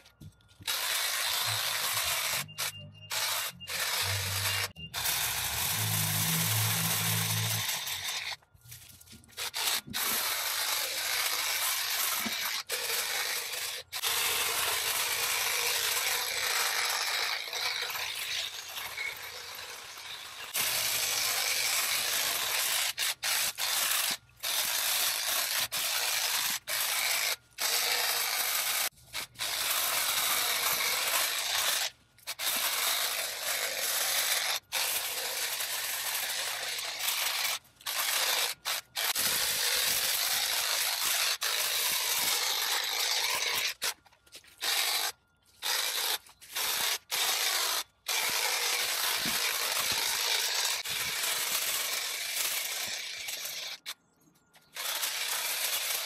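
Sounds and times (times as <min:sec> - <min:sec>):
hedge trimmer cutting branches: 0:00.6 - 0:54.0, 0:54.6 - 0:56.0.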